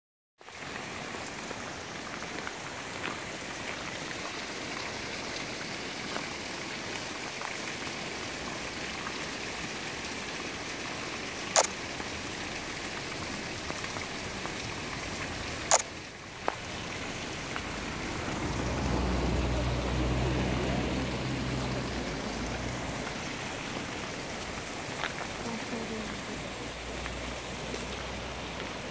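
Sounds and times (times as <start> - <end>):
flowing stream water: 0.4 - 28.9
waterfall splashing into pool: 0.4 - 28.9
sharp clicks: 11.6 - 11.8, 15.7 - 15.9.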